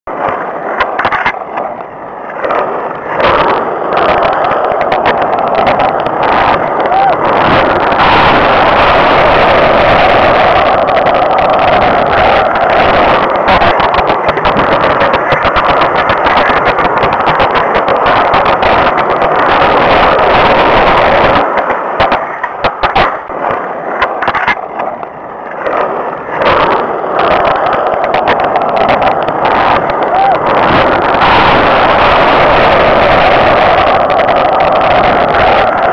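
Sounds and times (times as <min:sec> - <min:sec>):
skateboard wheels rolling on asphalt: 0:00.1 - 0:35.9
sharp clicks and knocks: 0:00.2 - 0:07.7, 0:11.1 - 0:31.4.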